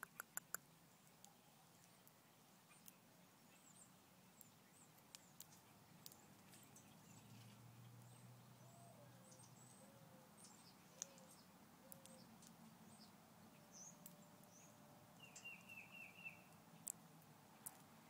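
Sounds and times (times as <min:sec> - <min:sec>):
high bird chirps: 0:13.8 - 0:16.6.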